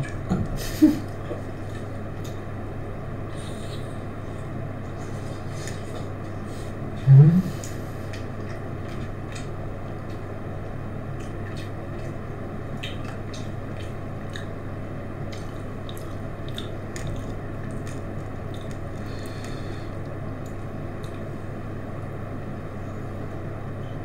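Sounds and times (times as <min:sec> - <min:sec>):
steady low hum: 0:00.0 - 0:24.0
wet squishy chewing: 0:07.6 - 0:10.3, 0:11.1 - 0:21.3.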